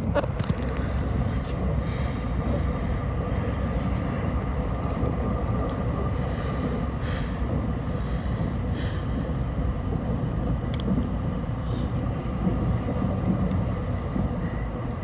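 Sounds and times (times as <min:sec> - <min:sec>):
train interior rumble: 0:00.0 - 0:15.0.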